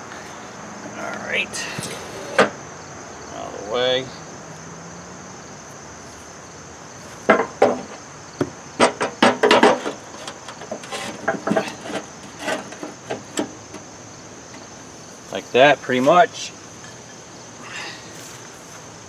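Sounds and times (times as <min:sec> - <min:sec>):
metal knocks and clunks: 0:01.8 - 0:02.6, 0:07.2 - 0:13.9.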